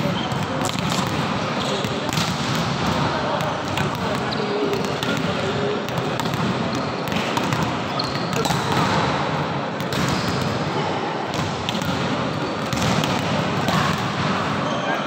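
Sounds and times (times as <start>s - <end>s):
balls bouncing on court floor: 0.0s - 10.7s, 11.3s - 15.0s
background hubbub: 0.0s - 15.0s
volleyballs being spiked: 11.3s - 14.4s.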